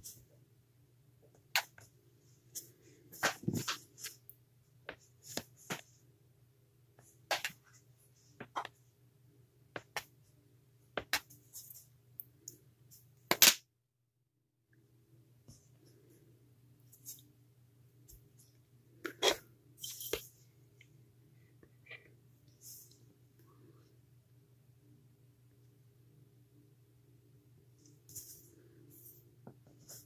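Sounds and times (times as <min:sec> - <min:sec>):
faint low hum: 0:14.7 - 0:30.0.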